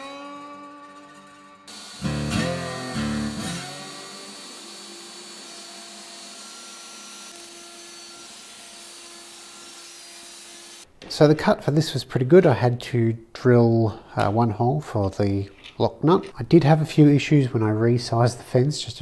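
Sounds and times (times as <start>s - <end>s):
acoustic guitar music: 0.0s - 3.5s
router spindle whining: 1.7s - 8.4s.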